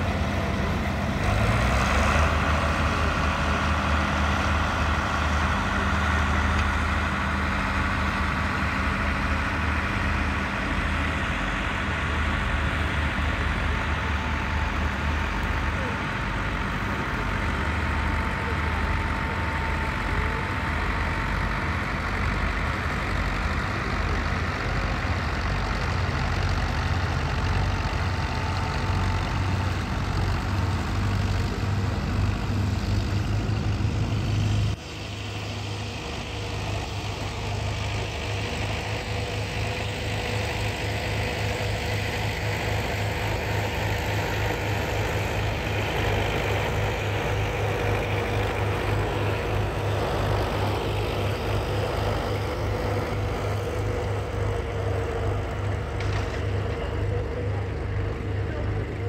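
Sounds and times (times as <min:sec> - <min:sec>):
tractor engine throbbing: 0:00.0 - 0:59.0.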